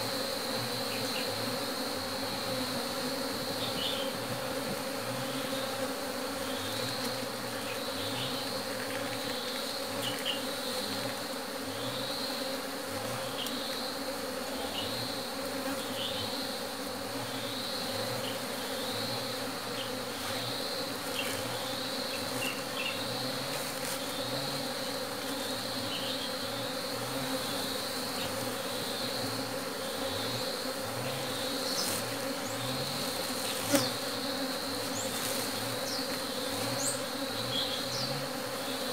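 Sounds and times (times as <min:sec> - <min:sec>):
bees buzzing: 0:00.0 - 0:38.9.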